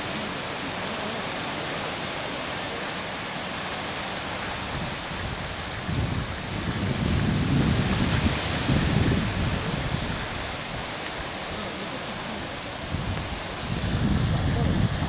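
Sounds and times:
wind hiss: 0.0 - 15.0
wind gusts buffeting microphone: 3.6 - 15.0.

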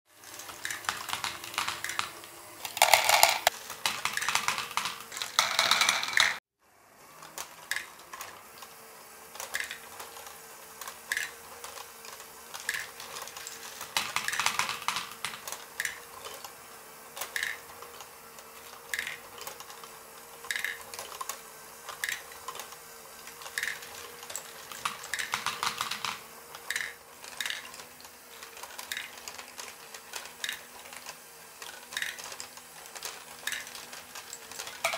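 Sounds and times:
small electric motor and gears: 0.1 - 6.4, 7.0 - 34.9
plastic balls clattering: 0.6 - 6.4, 34.5 - 34.9.

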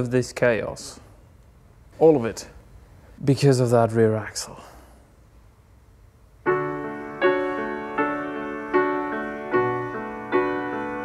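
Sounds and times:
piano chords: 6.4 - 11.0.

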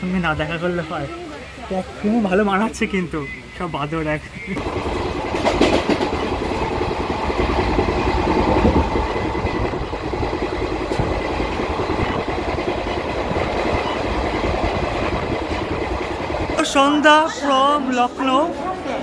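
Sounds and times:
train wheels on rails: 4.4 - 19.0.

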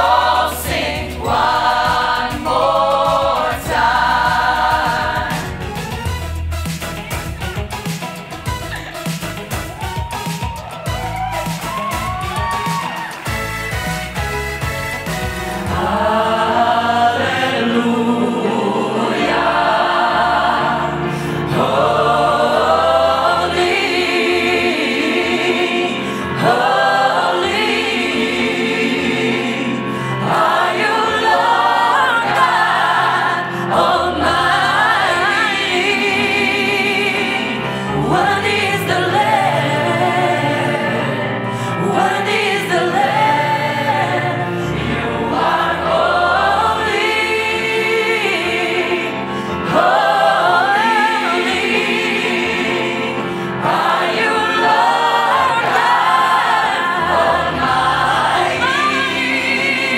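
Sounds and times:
choir singing: 0.0 - 5.9, 15.5 - 59.9.

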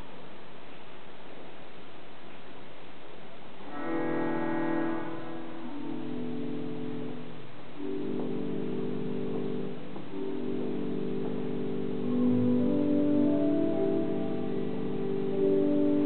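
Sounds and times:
church organ chords: 3.7 - 16.0.

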